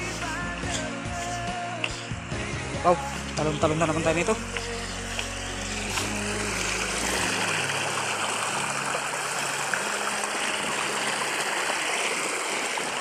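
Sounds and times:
background music: 0:00.0 - 0:12.6
river running over rocks: 0:04.4 - 0:13.0.

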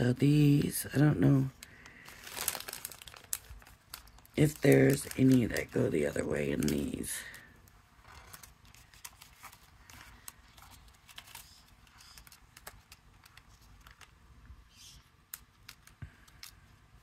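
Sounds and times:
cardstock rustling: 0:00.4 - 0:16.7
paper ticks and clicks: 0:08.2 - 0:14.2, 0:14.9 - 0:16.8.

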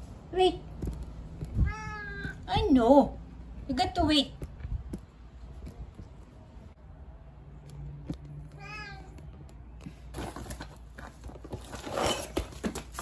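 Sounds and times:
cat meowing: 0:01.5 - 0:02.5, 0:08.5 - 0:09.2
rustling and handling noise: 0:07.6 - 0:13.0.

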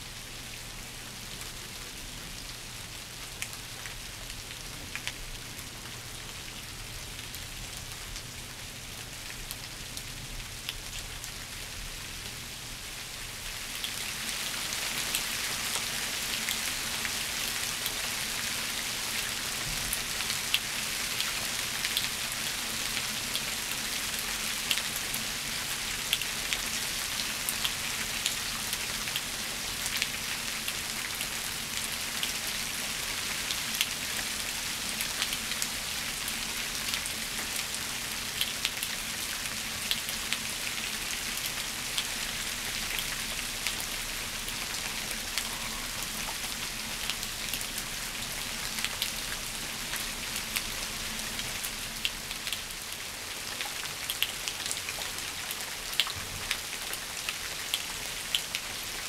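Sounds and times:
rain falling on leaves: 0:00.0 - 0:59.0.

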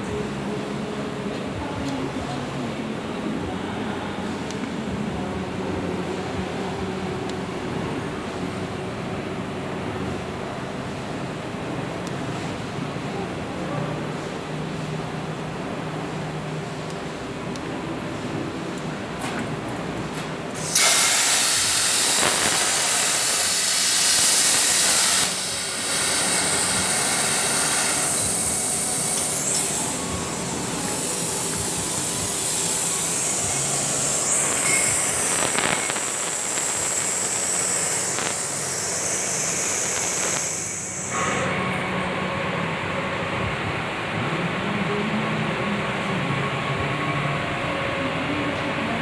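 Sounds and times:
plasma cutting torch hissing: 0:20.6 - 0:41.6.

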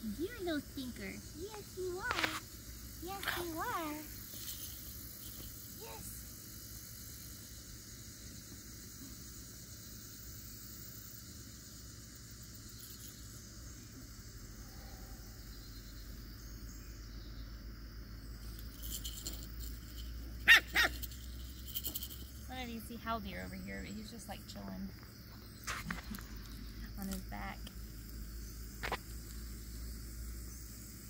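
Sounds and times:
insects buzzing: 0:00.0 - 0:31.0
puppy yipping: 0:20.5 - 0:21.0.

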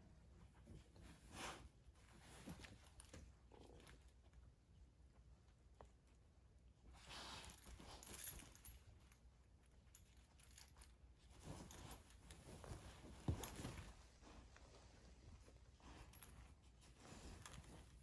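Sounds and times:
puppy chewing and tugging toy: 0:07.1 - 0:18.0.

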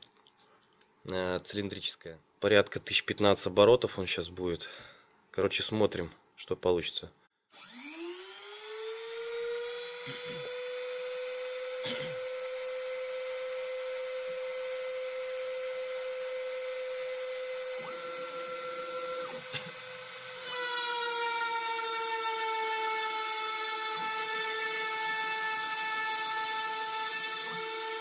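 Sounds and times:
rotary tool whining: 0:07.5 - 0:28.0.

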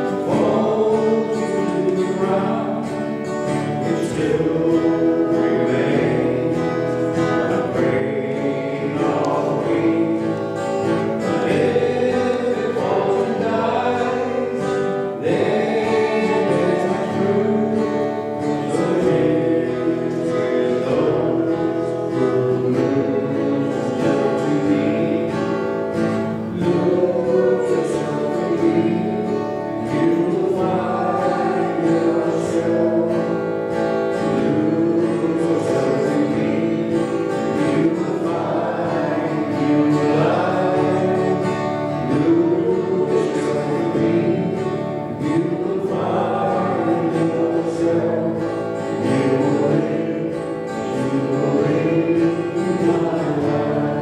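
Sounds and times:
acoustic guitar: 0:00.0 - 0:54.0
men singing a hymn: 0:00.0 - 0:54.0.

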